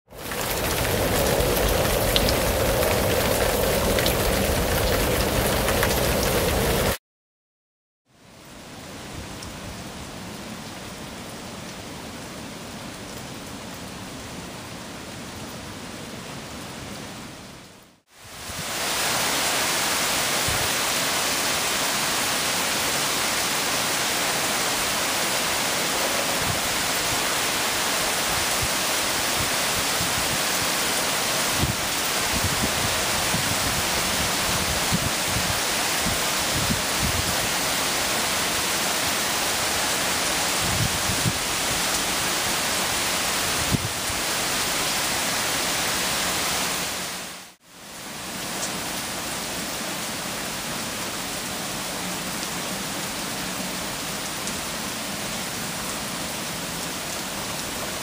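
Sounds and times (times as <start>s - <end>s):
heavy rain falling: 0.1s - 7.0s, 17.8s - 58.0s.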